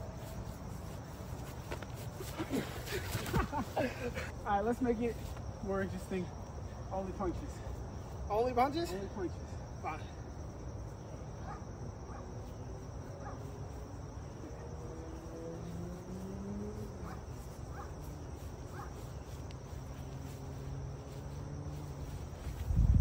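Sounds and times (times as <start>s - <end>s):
insects chirping: 0.0s - 23.0s.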